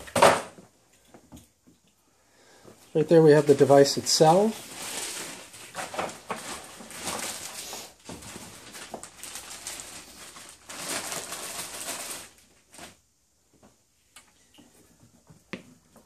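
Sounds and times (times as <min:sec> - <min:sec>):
plastic bag rustling and crinkling: 0:02.9 - 0:13.1.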